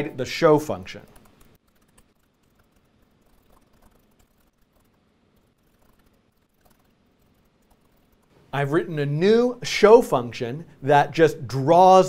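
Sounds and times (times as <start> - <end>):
laptop keyboard typing: 1.0 - 8.3.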